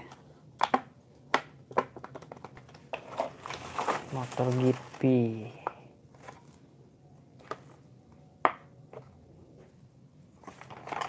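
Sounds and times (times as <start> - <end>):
plastic packaging crinkling: 2.2 - 5.4, 10.4 - 11.0.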